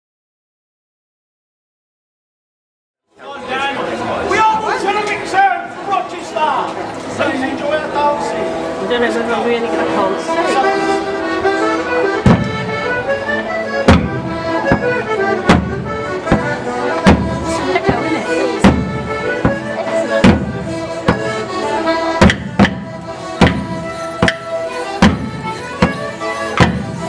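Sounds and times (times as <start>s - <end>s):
folk tune of held notes: 3.2s - 27.0s
sharp clacks on the beat: 12.2s - 12.8s, 13.8s - 18.0s, 22.2s - 27.0s.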